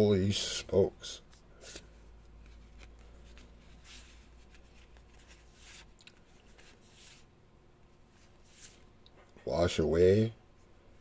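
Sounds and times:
cards swishing: 1.2s - 7.3s, 8.2s - 8.9s.

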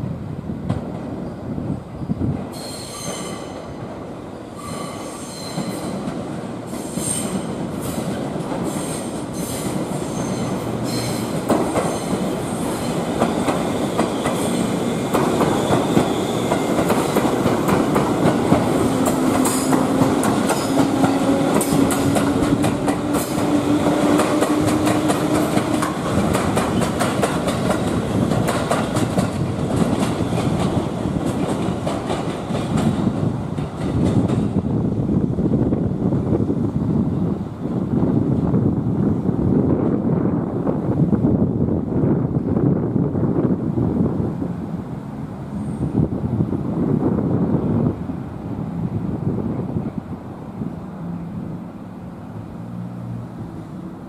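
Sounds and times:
train low hum: 0.0s - 54.0s
train wheels squealing: 2.0s - 3.8s, 4.5s - 6.1s, 6.7s - 13.0s, 13.7s - 17.0s, 20.5s - 22.1s
wheels clicking over rail joints: 15.1s - 34.6s.

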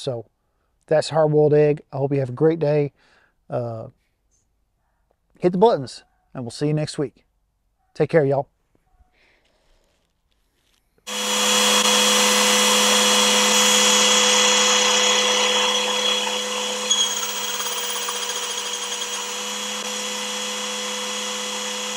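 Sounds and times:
small motor whirring: 11.1s - 21.9s.

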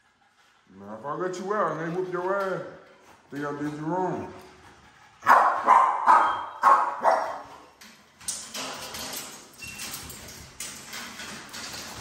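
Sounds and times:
dog barking: 5.2s - 7.6s.

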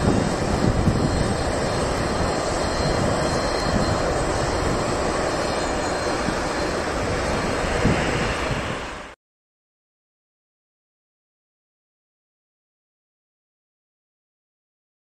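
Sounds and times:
jet engines roaring: 0.0s - 9.2s.

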